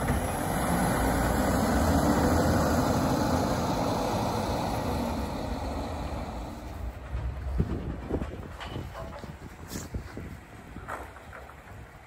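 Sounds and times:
garbage truck engine pulling away: 0.0 - 7.6.

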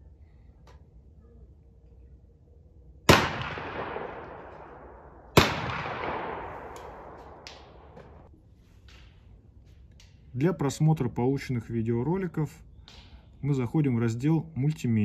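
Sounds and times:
gunshots echoing: 3.1 - 8.3.

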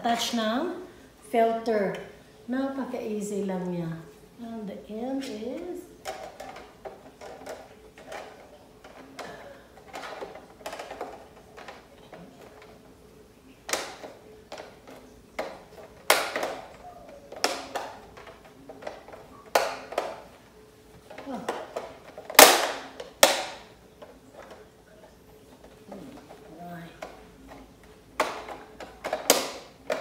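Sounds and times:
plastic clicks and snaps: 13.6 - 20.4, 21.1 - 30.0.

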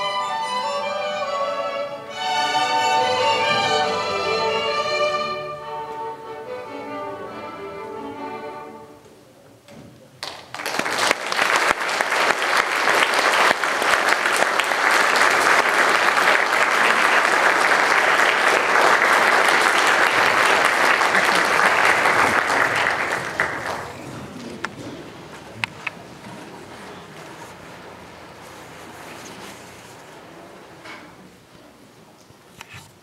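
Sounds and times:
string piece: 0.0 - 9.2
audience applauding: 10.2 - 27.6.

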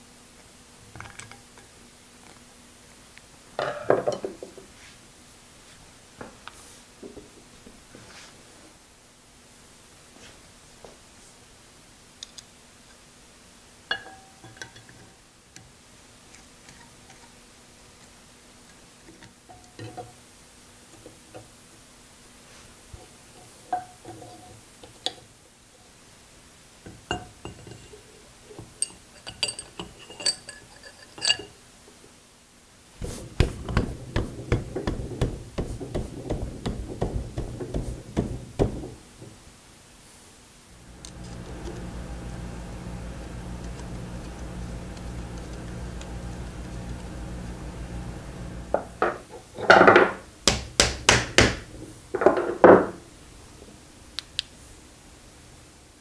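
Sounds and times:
steel parts clinking: 28.7 - 31.6
rapid metal clattering and rubbing: 33.0 - 39.4.

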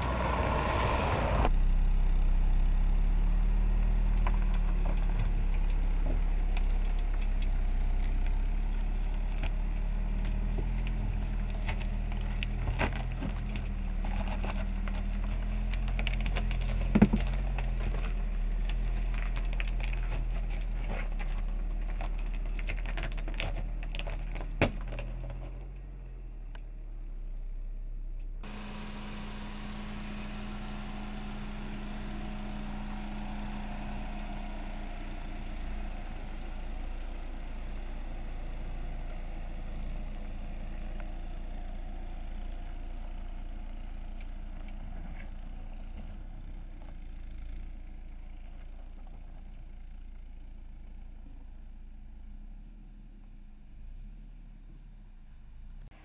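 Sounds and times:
suv engine running: 0.0 - 56.0
tyre noise on dirt: 3.8 - 25.7.

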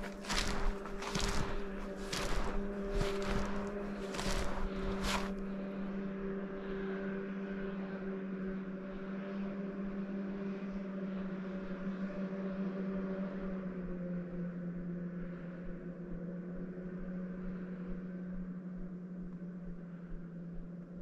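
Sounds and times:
snowshoes crunching in snow: 0.0 - 5.5
steady motor hum: 0.0 - 6.7.

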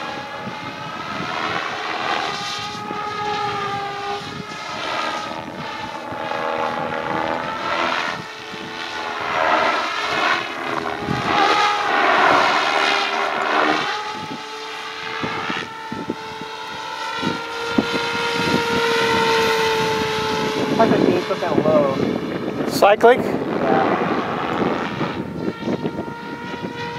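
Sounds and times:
model helicopter rotor whine: 0.0 - 26.9.

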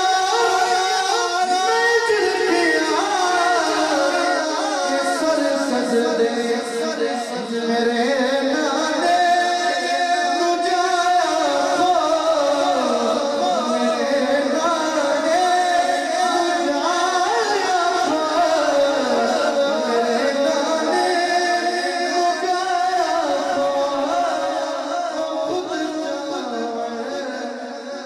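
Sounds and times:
man singing into a microphone: 0.0 - 28.0.

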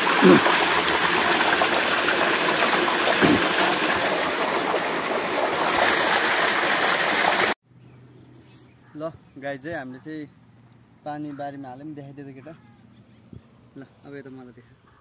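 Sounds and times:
water pouring from pump outlet: 0.0 - 7.6.

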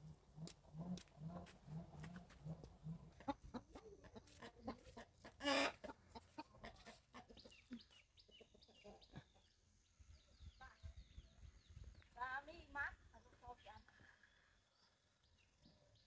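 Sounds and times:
chickens clucking: 0.0 - 9.7
footsteps on a path: 0.4 - 2.8.

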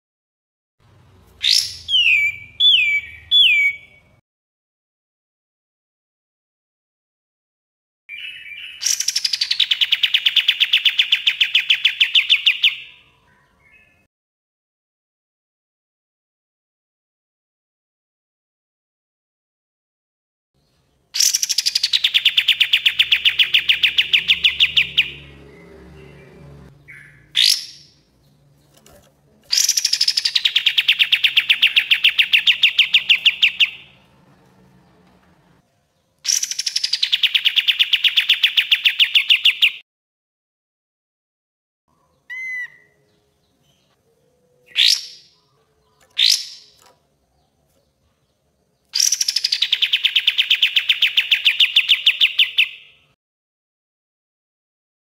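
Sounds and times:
bulbul singing: 1.4 - 4.2, 21.2 - 28.8, 29.5 - 34.1, 41.9 - 53.1.

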